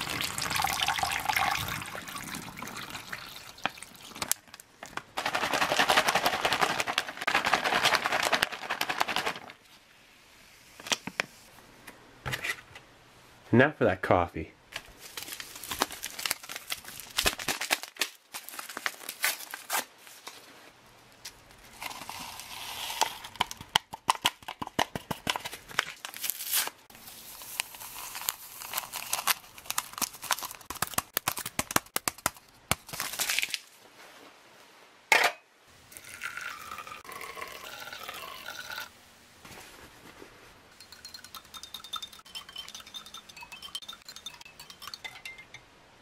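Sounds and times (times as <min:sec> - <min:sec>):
water pouring into glass: 0:00.0 - 0:04.2, 0:35.9 - 0:38.9
foil packet crinkling and tearing: 0:04.1 - 0:09.6, 0:14.8 - 0:20.3, 0:21.4 - 0:24.4, 0:25.2 - 0:33.8.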